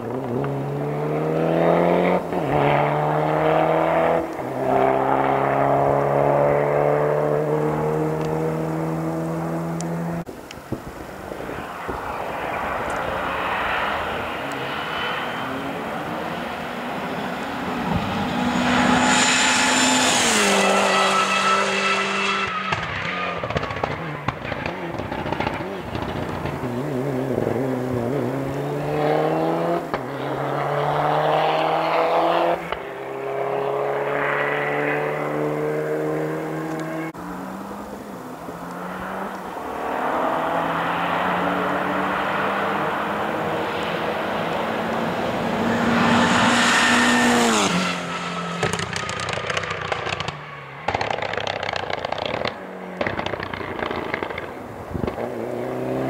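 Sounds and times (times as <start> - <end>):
rally car engine at full throttle: 0.0 - 10.3, 11.2 - 56.0.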